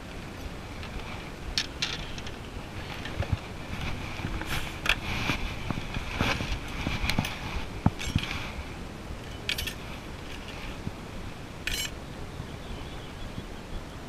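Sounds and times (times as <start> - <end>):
low steady rumble: 0.0 - 14.0
scratchy rustles: 0.2 - 10.9.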